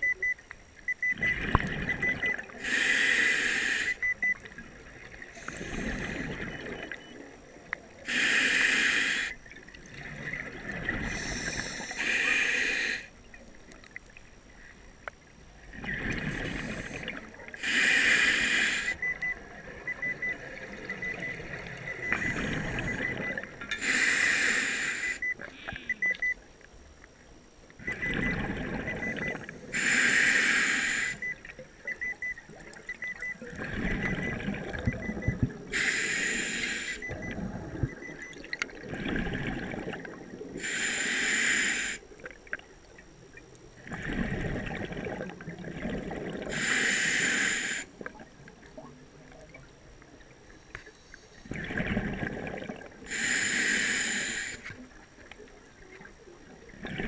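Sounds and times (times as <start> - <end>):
gurgling rush of bubbles: 1.2 - 2.6, 4.7 - 7.0, 9.6 - 11.8, 15.6 - 17.6, 27.8 - 29.5, 33.5 - 35.7, 37.1 - 40.6, 43.8 - 46.6, 51.4 - 53.1, 56.5 - 57.0
rasping inhale through regulator: 2.6 - 4.1, 8.1 - 9.4, 11.0 - 13.1, 16.2 - 19.2, 23.7 - 25.3, 29.6 - 31.3, 35.7 - 37.3, 40.6 - 42.0, 46.5 - 47.9, 53.1 - 54.7.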